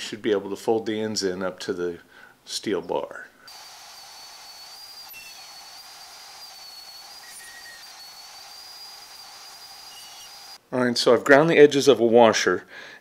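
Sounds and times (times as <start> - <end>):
band saw cutting steel tube: 3.5 - 10.6.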